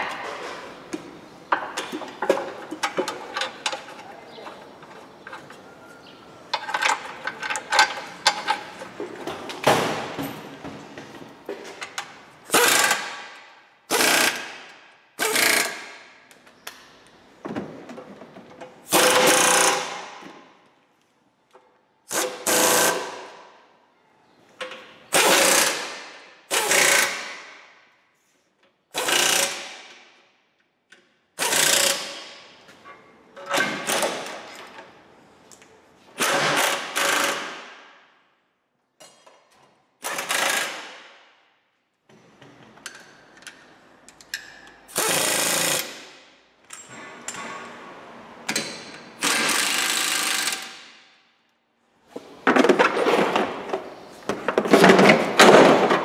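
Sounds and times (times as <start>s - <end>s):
power wrench bursts: 12.5s - 13.2s, 13.9s - 14.6s, 15.2s - 16.0s, 18.9s - 20.0s, 31.4s - 32.3s, 36.2s - 37.6s, 44.9s - 46.2s, 49.2s - 50.8s.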